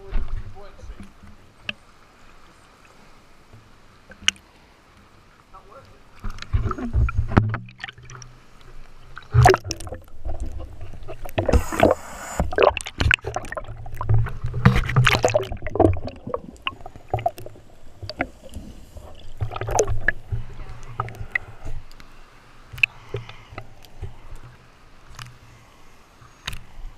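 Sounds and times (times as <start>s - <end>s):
water sloshing and gurgling: 0.0s - 26.9s
low underwater rumble: 6.4s - 21.9s.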